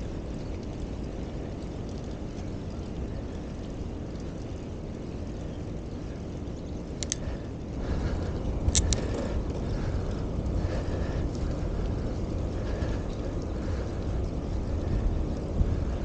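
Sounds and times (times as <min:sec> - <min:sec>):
wind rumbling on microphone: 0:00.0 - 0:16.0
sharp double clicks: 0:07.0 - 0:07.2, 0:08.7 - 0:09.1.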